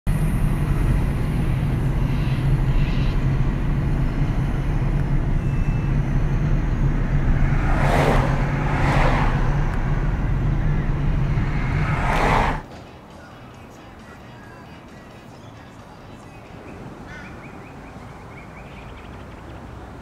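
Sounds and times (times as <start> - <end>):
low engine rumble: 0.1 - 12.7
vehicles passing by: 0.1 - 20.0.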